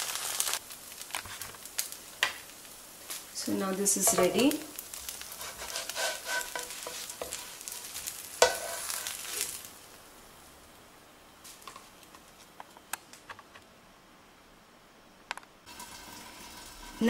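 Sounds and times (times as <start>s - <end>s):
batter sizzling in oil: 0.0s - 12.4s, 15.6s - 17.0s
wooden spatula scraping pan: 5.2s - 9.6s.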